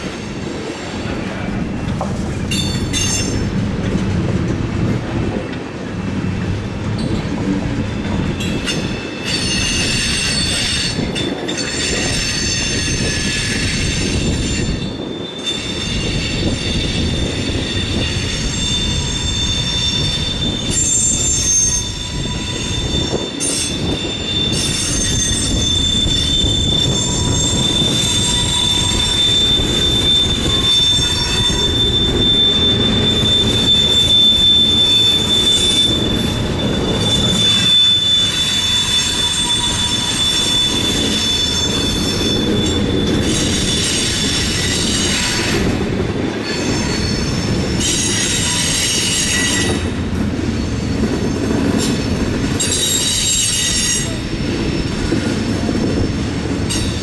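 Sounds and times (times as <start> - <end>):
train wheels rumbling on rails: 0.0 - 57.0
wheel flanges squealing: 8.2 - 45.8.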